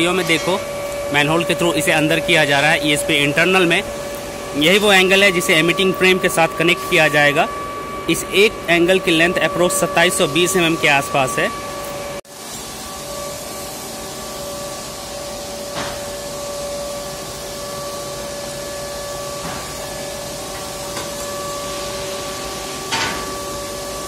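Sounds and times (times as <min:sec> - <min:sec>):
machinery drone with two-note hum: 0:00.0 - 0:12.2.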